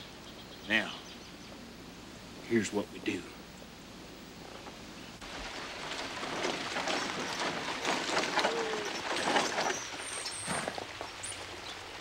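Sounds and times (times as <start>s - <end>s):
hooves clopping on gravel: 5.2s - 12.0s
stagecoach rattling: 5.4s - 11.1s.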